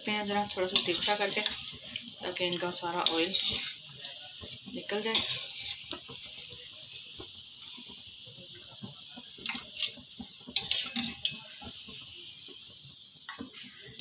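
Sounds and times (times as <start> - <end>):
doughnuts sizzling in hot oil: 0.0 - 14.0
metal tongs clicking on pan: 0.2 - 1.6, 2.3 - 4.2, 4.9 - 6.0, 9.4 - 10.0, 10.6 - 11.5.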